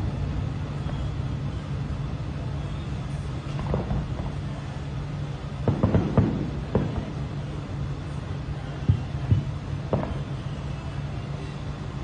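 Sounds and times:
road traffic rumble: 0.0s - 12.0s
faint fireworks pops: 3.1s - 4.6s, 5.6s - 7.4s, 8.7s - 10.6s.

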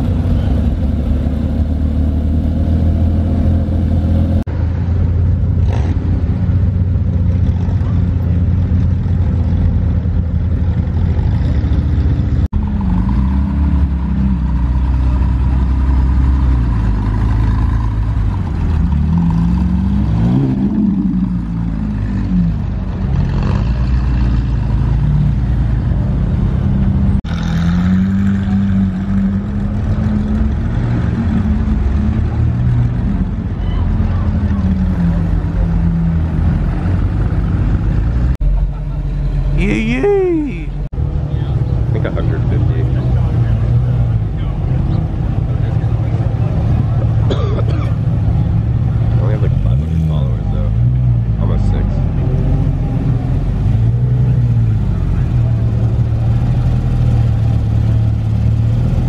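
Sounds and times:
sports car engines pulling away: 0.0s - 4.5s, 5.5s - 59.0s
engine revving: 10.9s - 38.4s.

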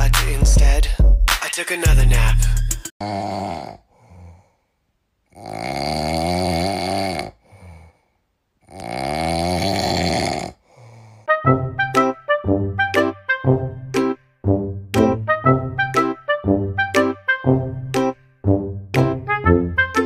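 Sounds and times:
puppy snoring: 3.0s - 4.2s, 5.3s - 7.9s, 8.6s - 10.6s
soft breaths: 3.8s - 5.0s, 7.3s - 8.5s, 10.5s - 11.3s.

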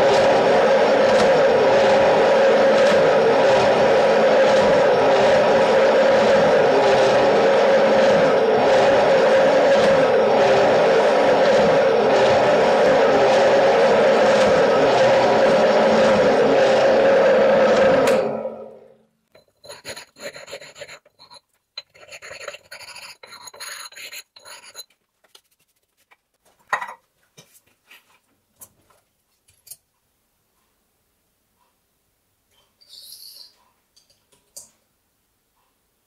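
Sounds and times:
metal shaper running: 0.0s - 18.8s, 19.4s - 24.8s
scraping strokes on metal: 19.4s - 24.9s.

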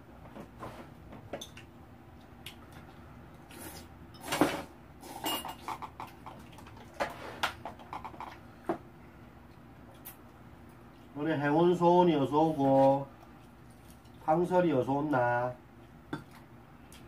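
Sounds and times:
dishes and cutlery clinking: 5.2s - 6.2s.

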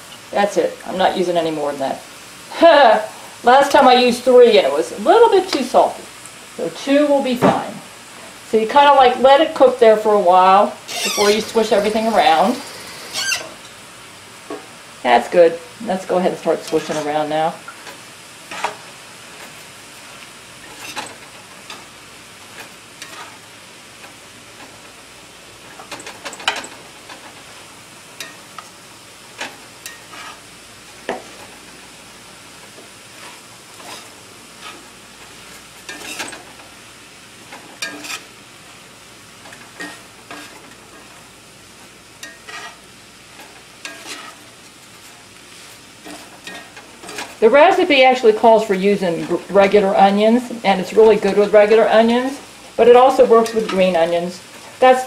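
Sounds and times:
rice sizzling in skillet: 0.0s - 55.0s
spatula scraping and knocking pan: 39.4s - 41.1s, 42.2s - 42.8s, 43.4s - 44.5s.

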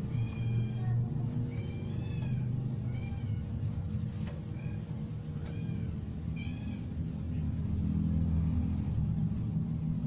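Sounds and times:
animal high-pitched cries: 0.0s - 3.7s, 4.5s - 7.0s
steady low rumble: 0.0s - 10.0s.

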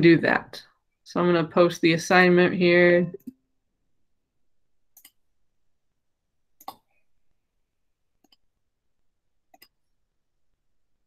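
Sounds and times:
faint computer mouse clicks: 5.0s - 5.2s.

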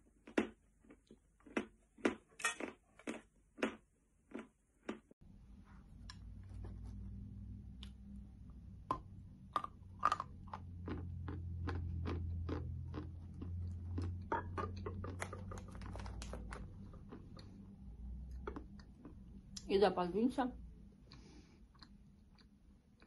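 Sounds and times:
person chewing crunchy chalk: 0.0s - 5.1s, 8.9s - 17.6s, 18.2s - 19.3s.

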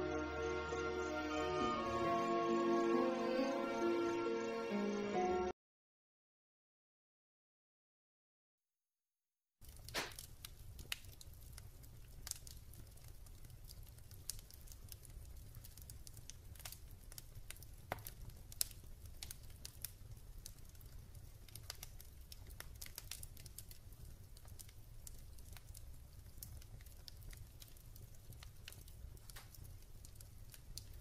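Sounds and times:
fire crackling and popping: 9.6s - 31.0s.

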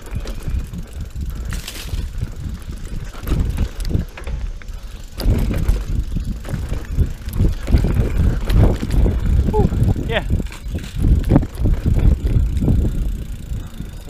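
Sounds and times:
bike rattling over bumps: 0.0s - 14.0s
bike tyre rumble: 0.0s - 14.0s
wind buffeting microphone: 0.0s - 14.0s.

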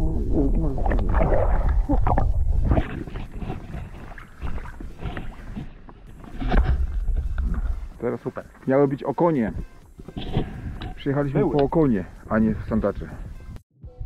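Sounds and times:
muffled underwater rumble and gurgling: 0.0s - 8.0s
water splashing and sloshing: 0.0s - 8.7s.

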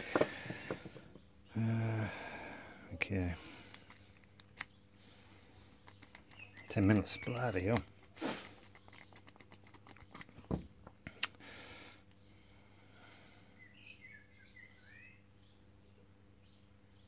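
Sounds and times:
faint bird chirps: 0.5s - 11.3s, 12.1s - 17.0s.

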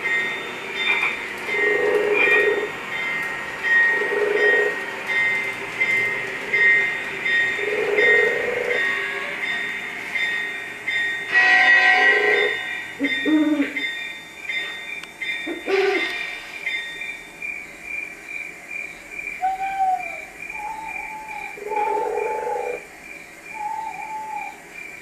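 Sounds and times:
low wavering calls: 0.0s - 9.2s, 11.3s - 14.1s, 19.3s - 24.7s
crickets chirping: 0.0s - 25.0s.

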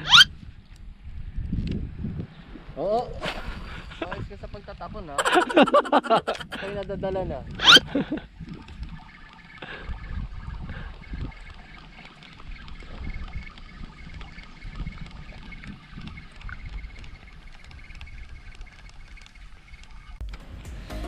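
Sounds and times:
wind buffeting microphone: 0.0s - 20.2s
faint steady whine: 6.8s - 20.2s.

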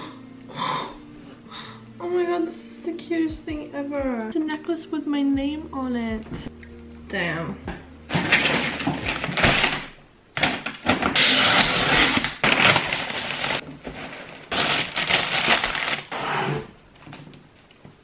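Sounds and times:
paper mailer tearing and rustling: 8.1s - 16.7s.

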